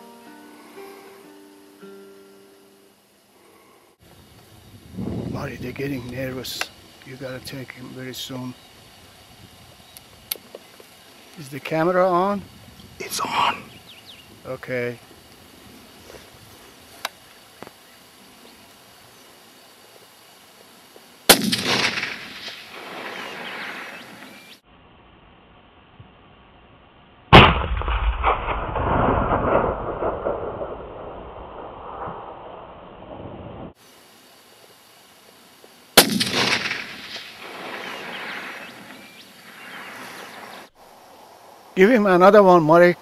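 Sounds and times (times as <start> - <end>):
rifle shot: 21.3 - 24.0, 27.3 - 33.2, 36.0 - 38.7.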